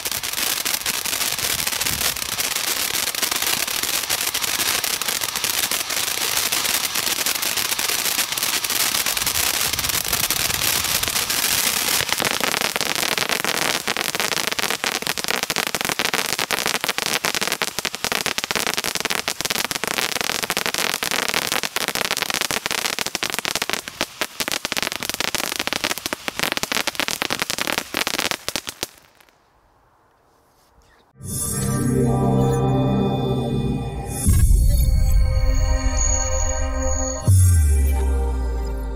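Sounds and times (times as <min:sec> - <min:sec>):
firework fountain hissing: 0:00.0 - 0:29.2
firework crackling: 0:00.0 - 0:29.4.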